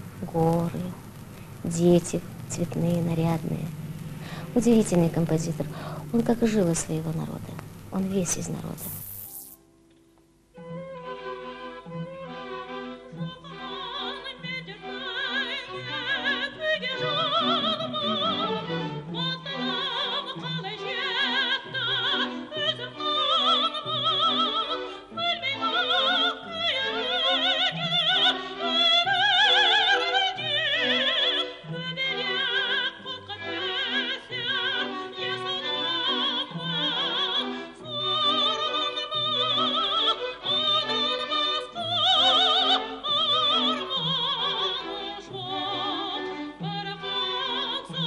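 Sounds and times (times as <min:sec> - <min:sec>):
woman singing opera: 0:00.2 - 0:01.0, 0:04.5 - 0:08.8, 0:10.6 - 0:48.0
orchestra: 0:10.6 - 0:48.0.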